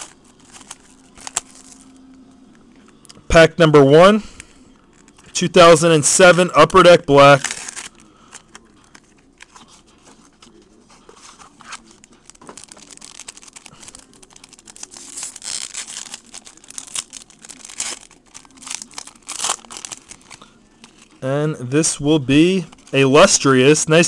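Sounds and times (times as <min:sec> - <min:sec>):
foil wrapper tearing and crinkling: 0:00.0 - 0:02.0, 0:07.1 - 0:09.6, 0:11.3 - 0:21.2, 0:22.6 - 0:23.1.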